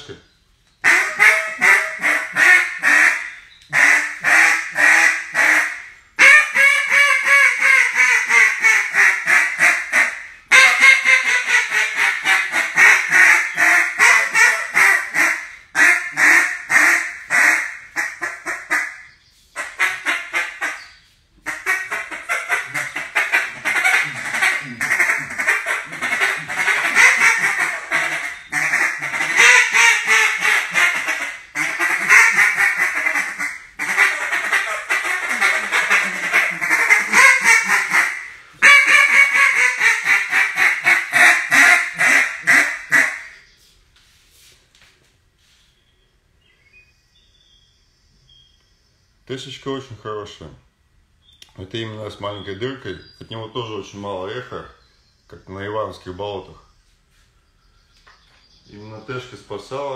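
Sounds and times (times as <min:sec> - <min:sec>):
duck call quacking: 0:00.8 - 0:43.4.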